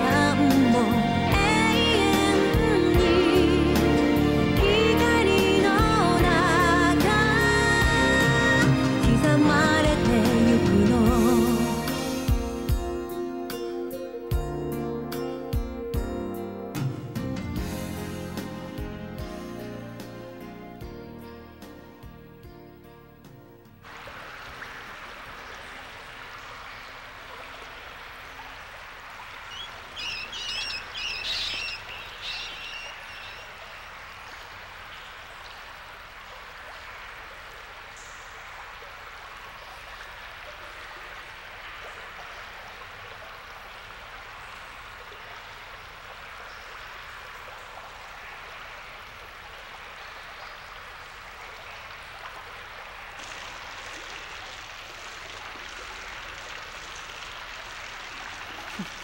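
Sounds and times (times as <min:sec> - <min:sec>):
running water: 0:00.0 - 0:14.4, 0:23.8 - 0:59.0
high bird chirps: 0:29.5 - 0:33.8.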